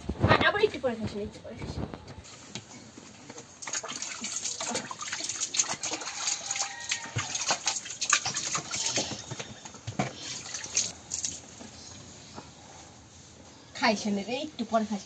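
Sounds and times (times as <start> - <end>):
milk squirting into bucket: 3.6 - 9.4.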